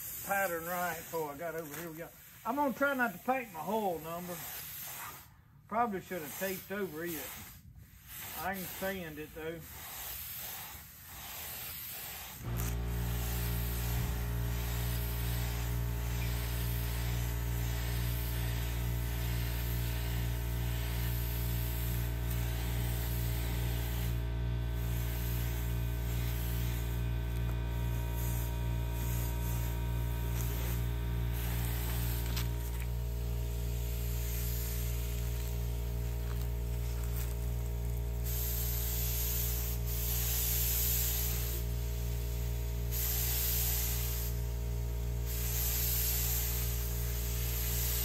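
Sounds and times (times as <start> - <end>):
air spray gun hissing: 0.0 - 48.0
air compressor motor humming: 12.0 - 48.0.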